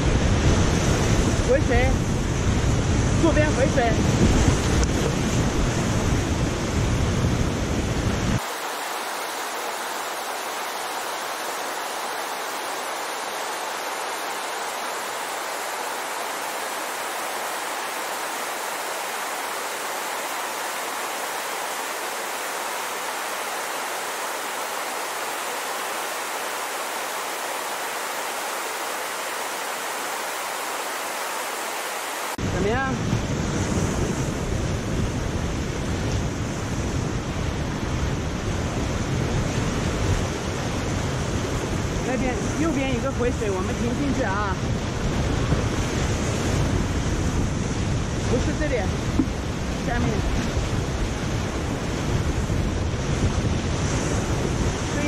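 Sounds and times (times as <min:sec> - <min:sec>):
wind buffeting on microphone: 0:00.0 - 0:08.5, 0:32.4 - 0:55.0
rushing whitewater: 0:00.0 - 0:33.1, 0:34.2 - 0:55.0.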